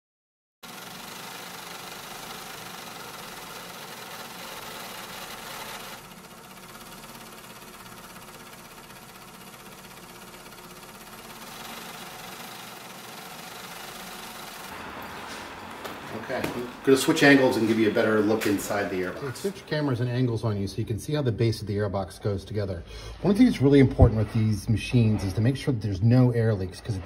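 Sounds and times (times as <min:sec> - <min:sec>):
steady whirring machine: 0:00.6 - 0:14.9.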